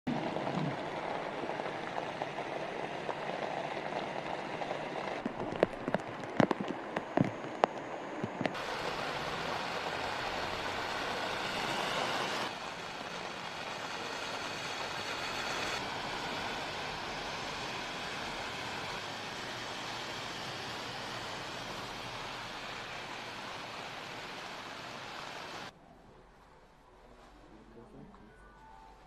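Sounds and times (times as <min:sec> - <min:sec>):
heavy rain falling: 0:00.1 - 0:05.7, 0:08.6 - 0:25.7
rain drops tapping: 0:00.1 - 0:11.6
car tyres passing on wet road: 0:00.1 - 0:25.7.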